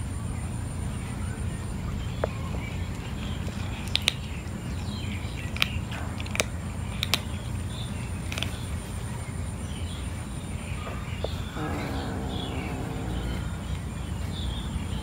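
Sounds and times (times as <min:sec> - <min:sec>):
cat crunching dry kibble: 0:03.2 - 0:04.4, 0:05.4 - 0:08.7
low background rumble: 0:11.0 - 0:15.0.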